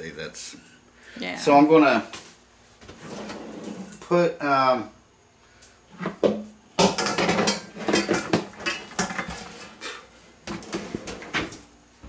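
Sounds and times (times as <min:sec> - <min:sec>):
bowls and colander clattering: 0:06.1 - 0:09.8.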